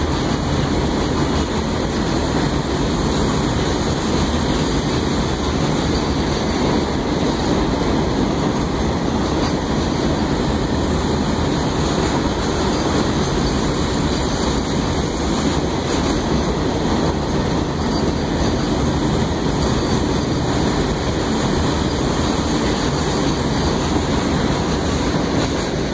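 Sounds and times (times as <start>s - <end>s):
steel wheels rolling on rail: 0.0s - 25.9s.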